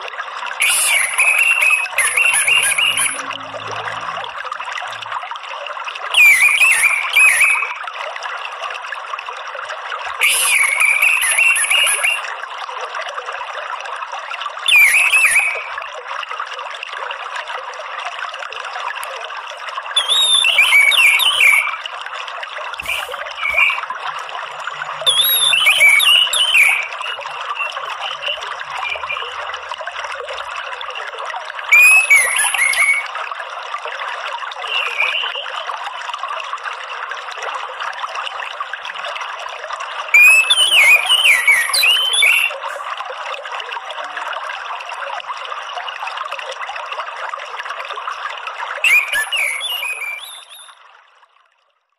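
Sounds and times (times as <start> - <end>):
running water: 0.0 - 51.6
thrush chattering and twittering: 0.6 - 3.7, 22.8 - 23.9, 24.5 - 29.5.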